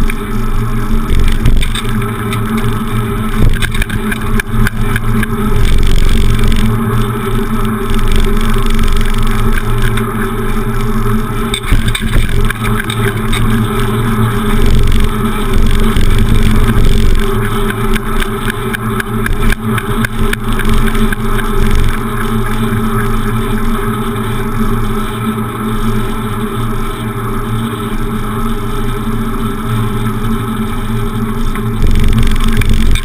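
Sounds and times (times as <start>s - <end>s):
wind buffeting microphone: 0.0s - 22.2s
bicycle rattles and clicks: 0.0s - 33.0s.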